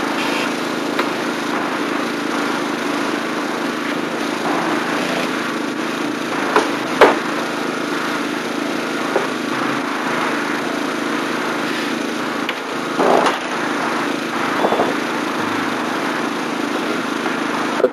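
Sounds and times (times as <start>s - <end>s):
small engine running: 0.0s - 17.9s
sharp knocks: 6.5s - 7.3s.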